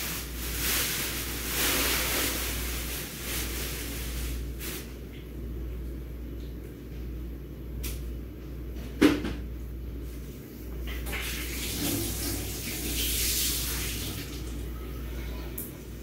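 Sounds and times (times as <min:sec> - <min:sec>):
soft hissing rustle: 0:00.0 - 0:05.0.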